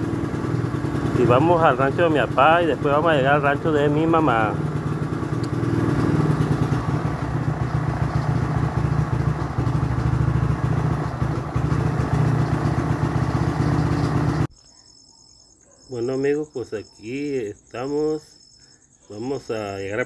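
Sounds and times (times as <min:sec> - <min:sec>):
motorcycle engine running: 0:00.0 - 0:14.5
road and wind noise: 0:04.5 - 0:14.5.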